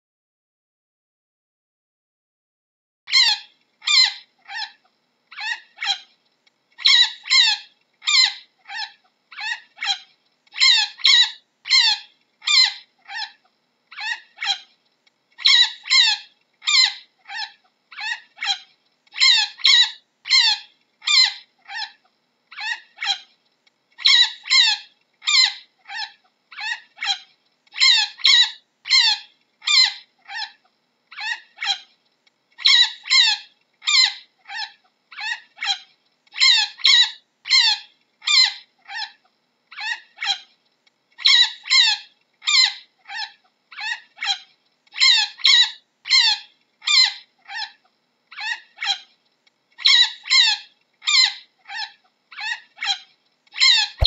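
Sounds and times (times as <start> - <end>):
chinchilla squeaking calls: 5.4 - 6.0, 6.8 - 10.0, 10.6 - 13.4, 14.0 - 14.6, 15.4 - 18.6, 19.2 - 21.9, 27.8 - 30.6, 41.2 - 44.4.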